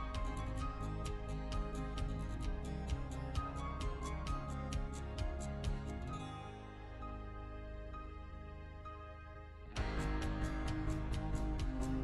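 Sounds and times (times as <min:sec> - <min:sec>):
quick steady beat: 0:00.0 - 0:06.1, 0:09.8 - 0:12.0
held music chords: 0:00.0 - 0:12.0.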